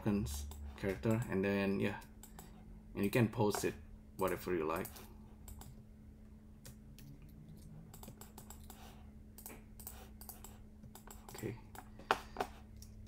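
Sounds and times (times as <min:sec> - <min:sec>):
low steady hum: 0:00.0 - 0:13.0
keyboard and mouse clicks: 0:03.4 - 0:05.8, 0:06.6 - 0:13.0.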